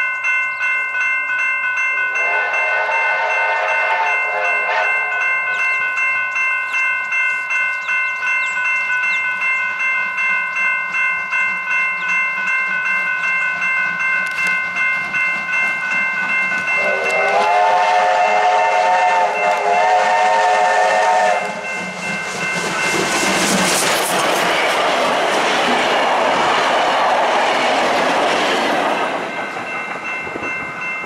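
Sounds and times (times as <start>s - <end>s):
crossing bell ringing: 0.0s - 31.0s
steam locomotive whistle: 2.1s - 6.0s, 16.8s - 22.0s
locomotive rushing past: 15.6s - 31.0s.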